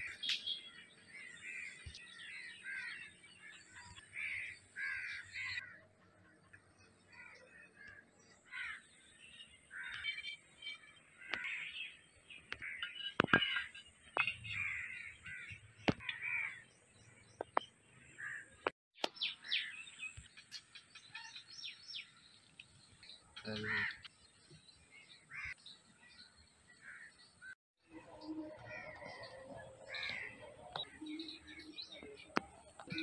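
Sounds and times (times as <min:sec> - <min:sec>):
crows cawing: 0:03.9 - 0:05.9, 0:07.1 - 0:08.9, 0:11.2 - 0:11.8, 0:14.4 - 0:16.6, 0:23.6 - 0:24.1, 0:25.3 - 0:25.6, 0:28.6 - 0:30.9.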